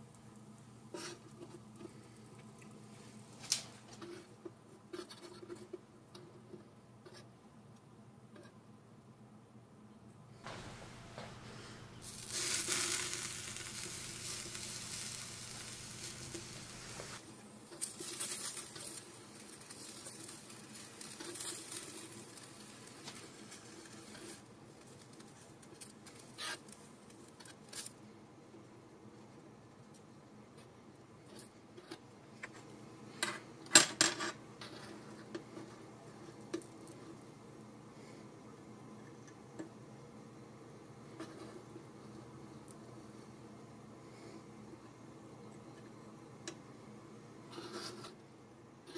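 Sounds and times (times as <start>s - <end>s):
food sizzling on a hot griddle: 12.0s - 17.2s, 17.8s - 24.4s
metal spatula scraping a griddle: 12.0s - 17.2s.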